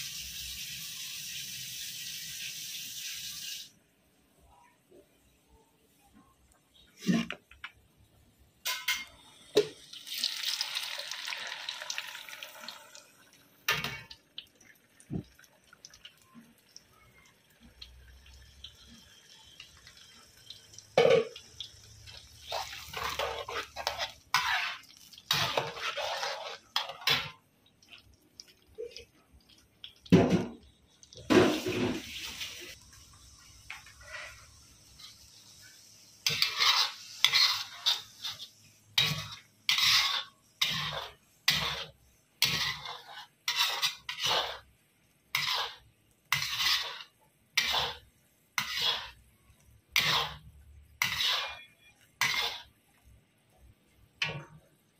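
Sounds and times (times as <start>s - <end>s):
paste sizzling in hot oil: 0.0s - 3.7s, 8.7s - 14.5s, 17.6s - 53.7s
metal spatula scraping wok: 21.0s - 27.4s, 33.8s - 44.7s, 45.3s - 49.3s, 49.9s - 52.8s.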